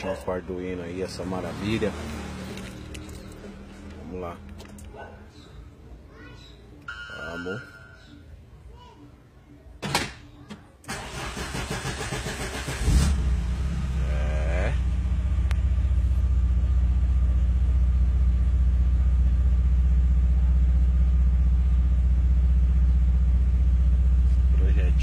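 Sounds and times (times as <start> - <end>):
car starter motor cranking: 10.8 - 13.2
car engine idling: 10.9 - 25.0.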